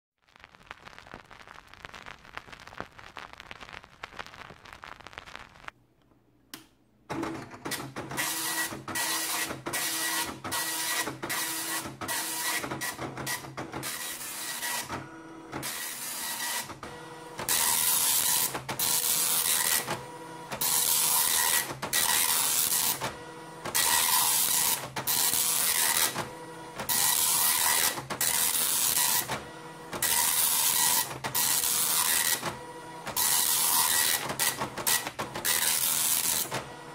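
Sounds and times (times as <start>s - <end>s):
crackling noise: 0.2s - 6.2s
dot matrix printer buzzing: 7.1s - 36.9s.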